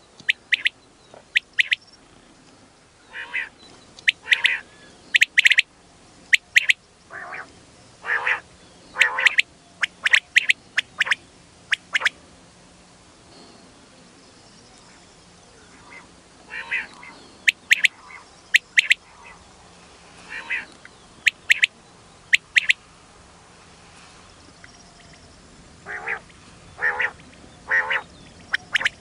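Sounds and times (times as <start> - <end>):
quail calling: 0.2 - 1.8, 3.1 - 5.7, 6.3 - 12.1, 15.8 - 19.4, 20.3 - 21.7, 22.3 - 22.8, 25.9 - 29.0.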